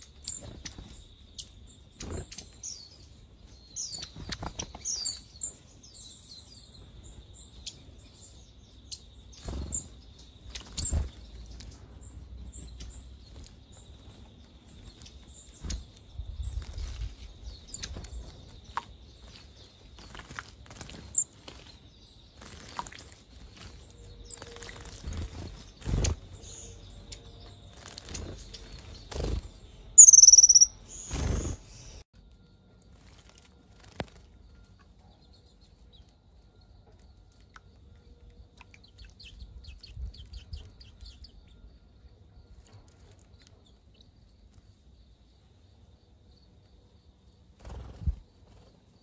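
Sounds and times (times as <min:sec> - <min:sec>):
bird chirps: 0:00.0 - 0:20.3, 0:20.9 - 0:44.8
birds splashing in water: 0:20.0 - 0:26.3
sharp high bird call: 0:30.0 - 0:30.8.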